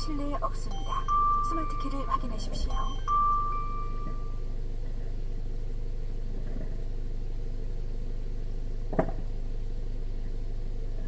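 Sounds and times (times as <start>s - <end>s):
short knock: 8.9s - 9.3s.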